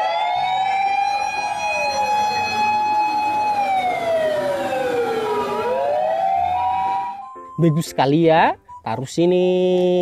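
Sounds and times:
fire engine siren wailing: 0.0 - 7.9.

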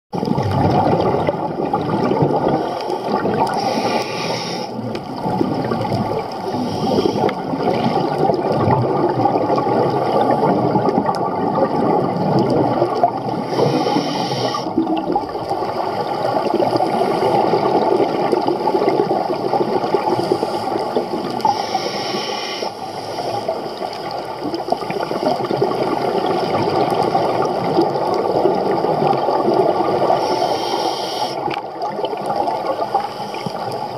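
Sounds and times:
underwater bubbling and gurgling: 0.1 - 33.9
regulator air hiss: 2.6 - 4.8, 6.5 - 7.3, 13.4 - 14.7, 21.5 - 23.4, 30.2 - 31.5.

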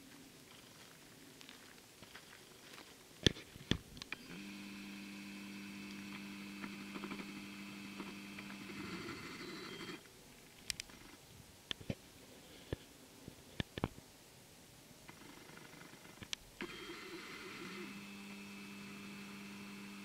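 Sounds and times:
camcorder zoom motor whining: 4.1 - 10.1, 16.6 - 20.0.

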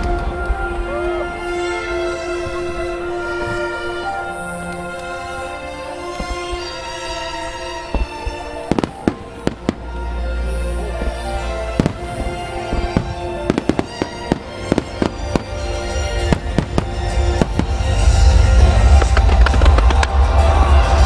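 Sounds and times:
music playing: 0.0 - 21.0
firework shells bursting: 11.0 - 20.3.

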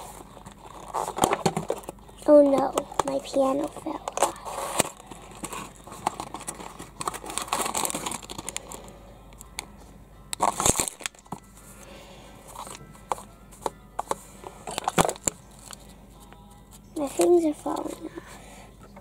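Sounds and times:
plastic bag crinkling: 0.0 - 8.9, 10.4 - 11.4
cardboard box opening: 0.6 - 1.9, 4.0 - 8.4
tearing crackle: 4.2 - 8.8, 10.4 - 11.2.

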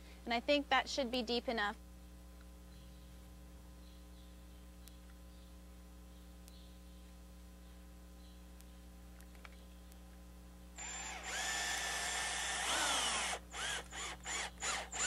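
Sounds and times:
cordless drill boring into wood: 10.8 - 15.0
drill driving screw in bursts: 10.8 - 15.0.

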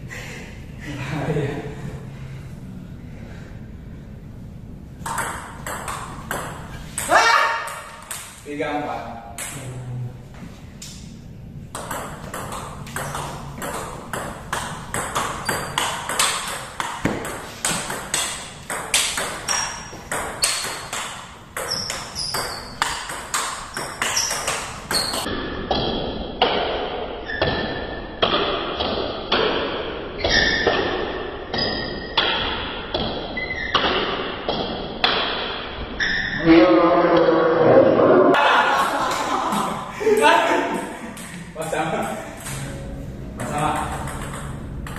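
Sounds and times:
table tennis ball pinging: 5.0 - 8.4, 9.3 - 9.7, 11.7 - 36.3, 40.7 - 44.9.

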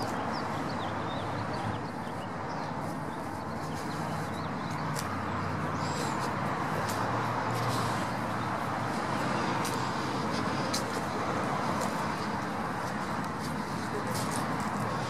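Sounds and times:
road traffic rush: 0.0 - 15.0.

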